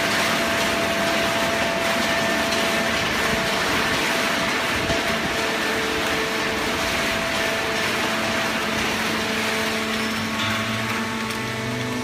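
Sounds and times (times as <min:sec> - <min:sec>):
hydraulic baler running: 0:00.0 - 0:12.0.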